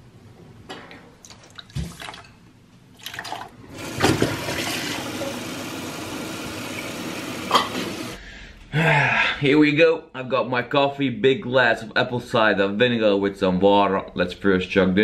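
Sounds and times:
tap water filling plastic jug: 3.0 - 8.2.

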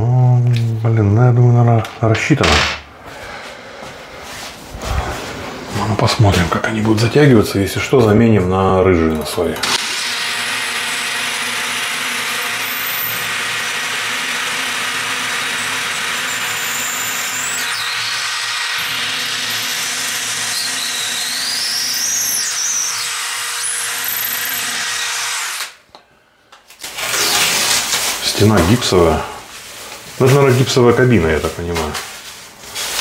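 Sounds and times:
cordless drill boring into tile: 9.6 - 25.8, 26.9 - 28.0
high drill squeal: 9.8 - 25.6.

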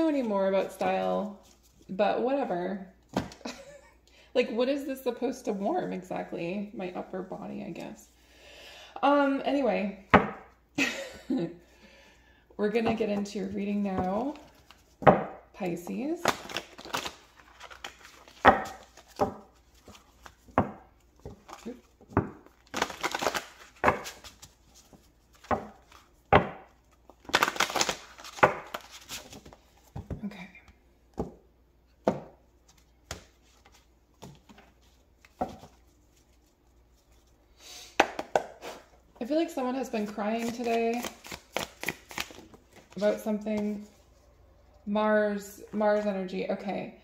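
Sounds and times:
cards shuffled by hand: 16.2 - 20.5, 40.0 - 44.0.

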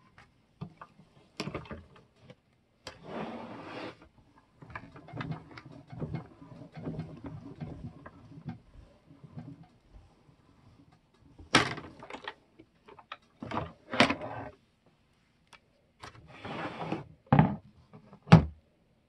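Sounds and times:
plastic plates sliding scrapes: 2.9 - 10.9, 13.5 - 14.6, 16.2 - 17.1.

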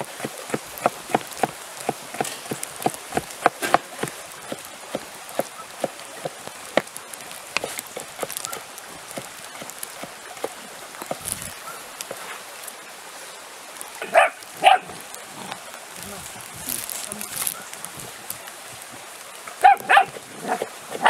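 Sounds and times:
light ticks and crackles: 0.0 - 21.0
puppy yipping: 19.6 - 20.2.

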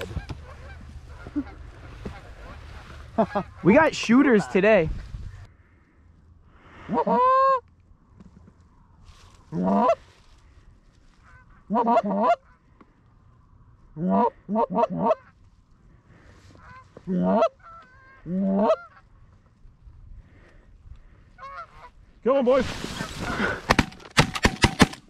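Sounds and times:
goose calls honks and clucks: 0.0 - 4.8, 6.8 - 7.6, 9.5 - 10.0, 11.2 - 12.6, 13.9 - 15.4, 16.5 - 19.1, 21.4 - 22.0
distant geese honking: 0.0 - 5.5, 9.4 - 13.1, 14.0 - 19.6, 20.3 - 22.0.

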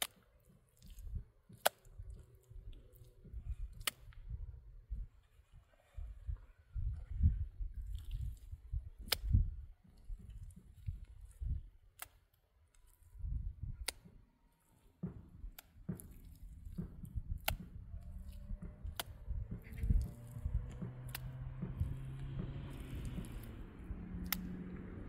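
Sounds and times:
hands slapping wet mud: 0.0 - 4.3, 7.8 - 13.0, 13.6 - 25.0.

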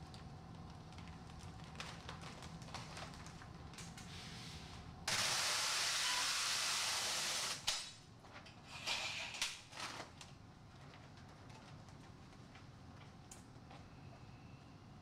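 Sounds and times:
plastic film rustling: 0.5 - 4.1.

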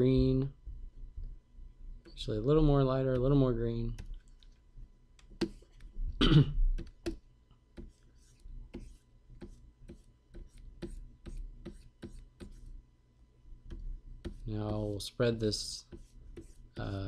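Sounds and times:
stylus tapping on screen: 5.2 - 5.9, 6.7 - 8.0, 8.7 - 12.6, 13.6 - 14.9
man clearing his throat: 6.2 - 6.7.

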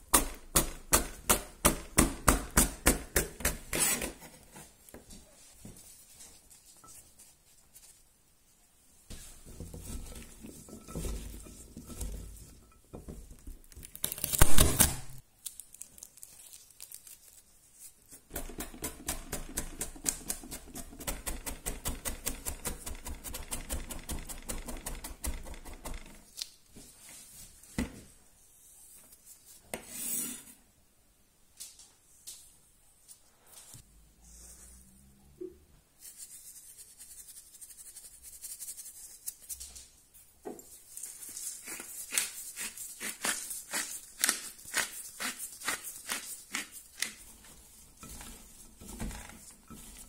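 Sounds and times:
knife chopping on plastic board: 0.1 - 3.8, 18.3 - 26.1
pepper strips rustling: 9.2 - 19.1, 36.0 - 50.0.

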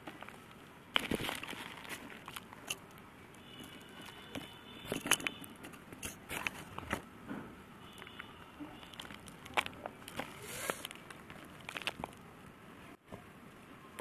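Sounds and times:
powdery clumps crunching by hand: 0.0 - 4.4, 8.0 - 12.3.

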